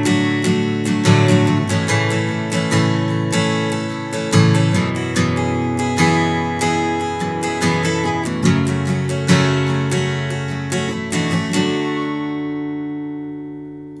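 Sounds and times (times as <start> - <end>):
fingerstyle acoustic guitar: 0.0 - 14.0.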